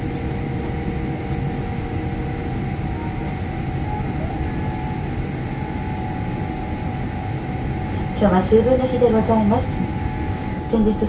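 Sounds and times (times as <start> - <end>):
aircraft wheels rumbling: 0.0 - 11.0
faint steady tones: 0.0 - 11.0
jet engines idling: 0.0 - 11.0.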